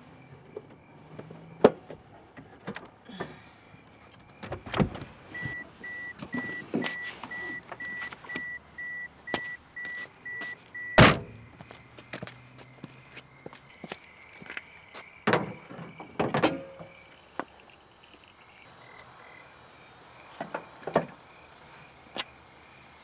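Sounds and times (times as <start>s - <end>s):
door-open warning chime beeping: 5.3s - 11.2s
car door slamming: 10.9s - 11.4s
car door unlatching clunk: 11.0s - 11.3s.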